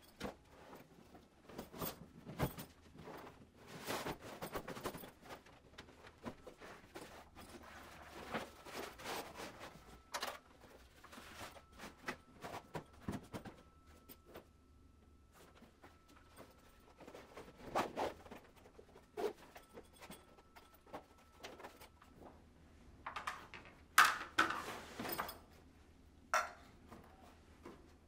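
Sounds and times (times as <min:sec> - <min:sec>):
fabric backpack rustling and scraping: 0:17.0 - 0:19.6.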